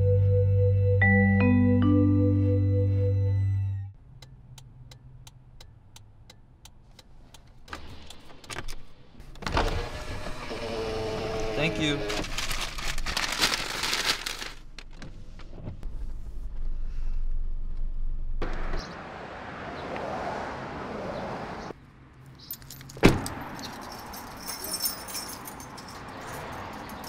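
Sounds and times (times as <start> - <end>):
light clicks and jingling: 22.4 - 27.0.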